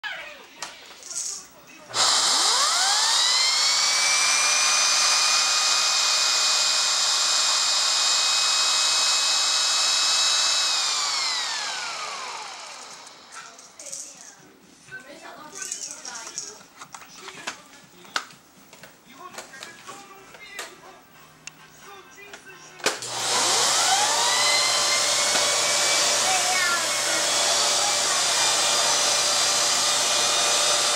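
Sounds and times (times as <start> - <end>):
vacuum cleaner whining: 1.9 - 13.8, 22.8 - 30.9.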